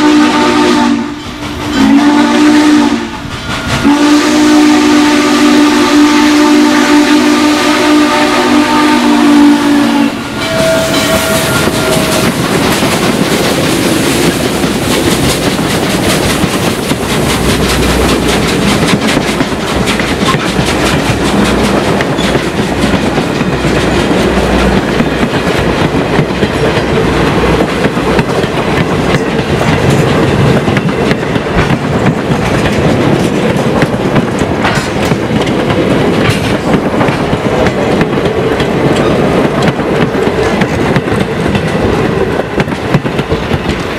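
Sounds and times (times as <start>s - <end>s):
steam whistle: 0.0s - 12.4s
train wheels clacking on rail joints: 0.8s - 2.3s, 3.2s - 5.2s, 10.2s - 43.9s.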